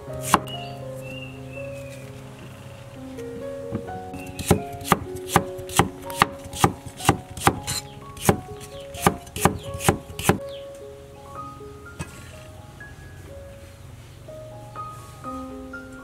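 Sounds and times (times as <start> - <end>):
soft background music: 0.0 - 16.0
knife chopping carrot on board: 4.4 - 7.6, 9.0 - 10.4.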